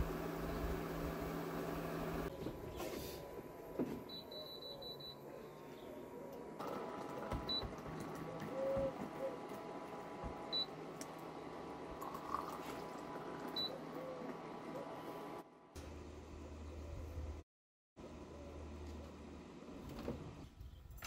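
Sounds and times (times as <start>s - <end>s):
water pouring into glasses: 12.0s - 13.1s.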